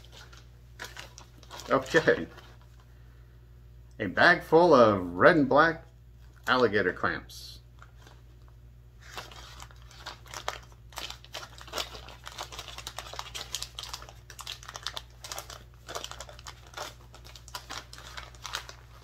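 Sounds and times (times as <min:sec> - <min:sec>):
plastic bag crinkling: 0:00.0 - 0:02.9, 0:09.0 - 0:19.0.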